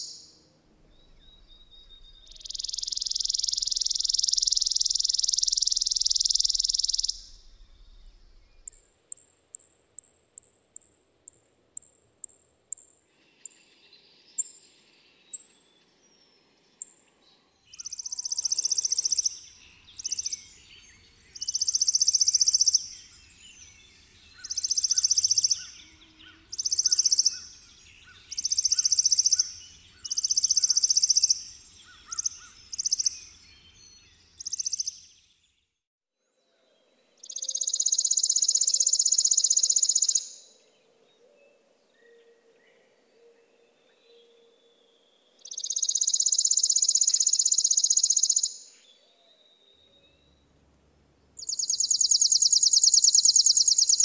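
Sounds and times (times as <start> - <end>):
sparrow dry rapid trills: 1.0 - 13.8, 17.7 - 35.1, 37.2 - 40.6, 45.4 - 48.7, 51.4 - 54.0.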